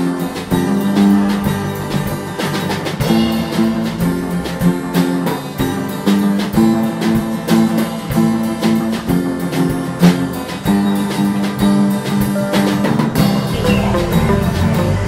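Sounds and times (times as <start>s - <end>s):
plucked guitar: 0.0s - 15.0s
steady drum beat: 0.0s - 15.0s.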